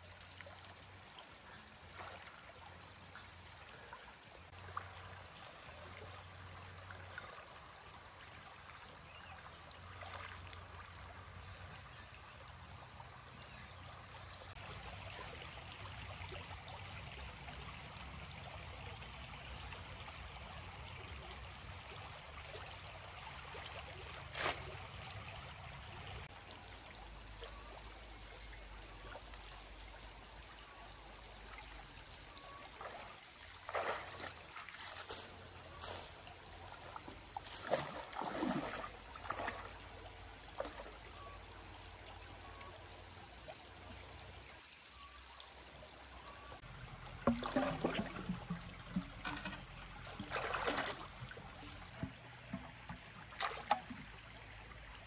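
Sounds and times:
stream water trickling: 0.0 - 55.0
hands splashing in water: 33.6 - 35.3.

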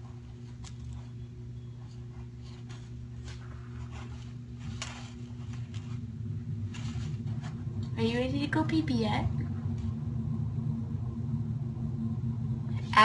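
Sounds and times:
kitten digging in litter: 0.0 - 8.0
steady low hum: 0.0 - 13.0.

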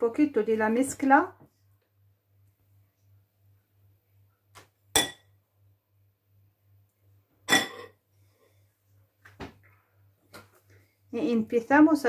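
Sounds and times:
metal spoon clinking glass bowl: 5.0 - 5.3, 7.5 - 8.0.

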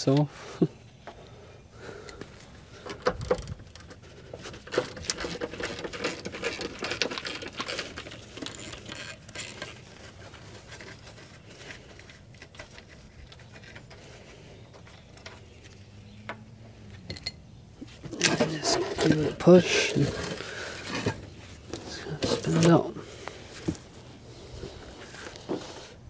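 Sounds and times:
gloved hands rustling and scraping: 3.6 - 15.9, 17.7 - 26.0.

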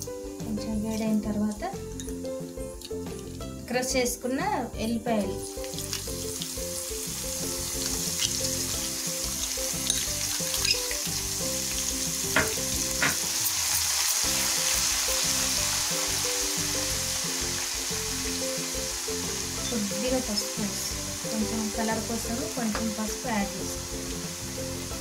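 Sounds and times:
garlic sizzling in hot oil: 0.0 - 25.0
sharp pops of frying seeds: 5.3 - 14.5.

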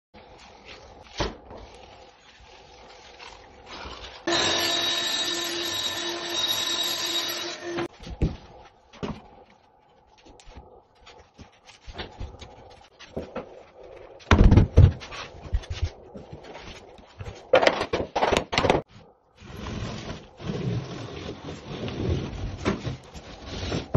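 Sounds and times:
table saw cutting wood: 4.2 - 7.9
floorboards knocking and thumping: 14.2 - 16.4, 17.2 - 18.9.

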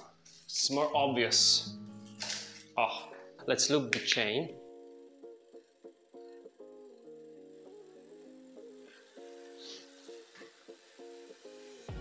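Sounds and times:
plucked strings melody: 1.1 - 5.2.

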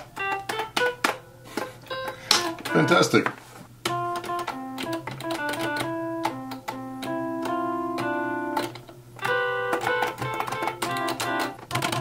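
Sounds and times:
arcade buttons clicking: 0.0 - 12.0
software instrument notes: 0.0 - 12.0.

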